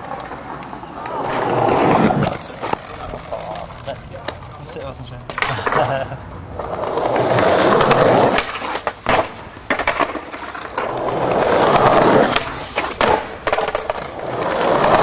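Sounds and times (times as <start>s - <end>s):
skateboard clacking on ground: 0.0s - 15.0s
skateboard wheels rolling on stone: 0.0s - 15.0s.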